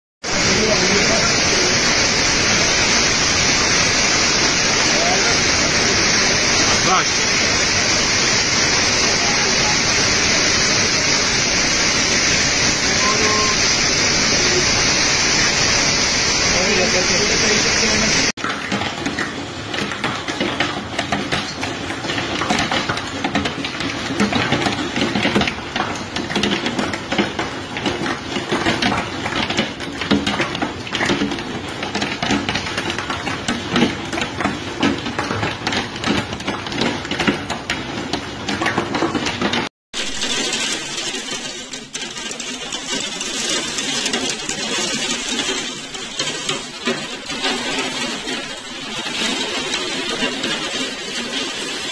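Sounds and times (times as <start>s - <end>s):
heavy rain hiss: 0.3s - 18.3s
hailstones clattering: 0.3s - 51.9s.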